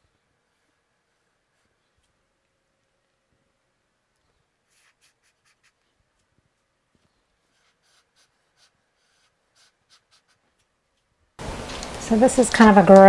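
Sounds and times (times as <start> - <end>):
faint short scratching strokes: 4.6 - 6.3, 7.1 - 10.7.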